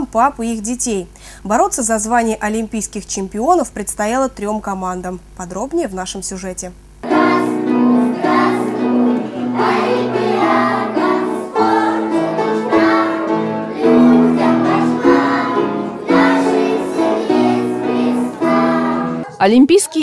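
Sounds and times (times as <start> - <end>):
children singing: 7.0 - 19.4
instrumental accompaniment: 7.0 - 19.4.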